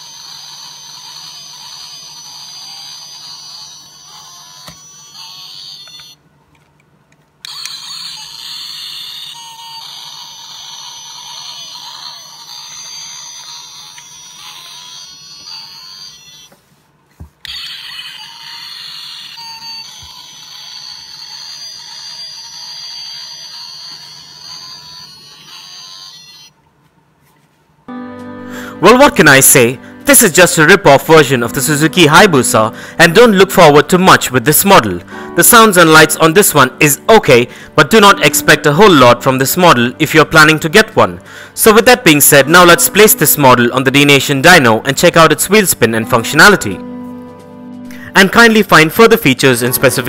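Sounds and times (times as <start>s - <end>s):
tinny toy motorcycle sound effects: 0.0s - 6.2s, 7.5s - 16.5s, 17.5s - 26.5s.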